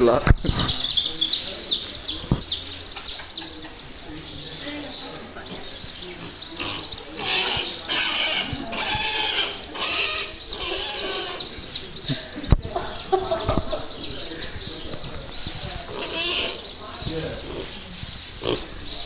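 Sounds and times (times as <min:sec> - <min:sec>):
piglet squealing: 0:06.6 - 0:11.6, 0:15.9 - 0:16.6.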